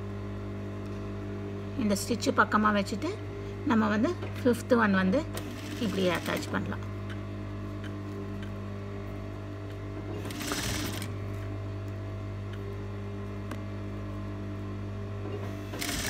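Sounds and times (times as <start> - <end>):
sewing machine motor humming: 5.3 - 6.7, 10.1 - 11.4, 15.6 - 16.0.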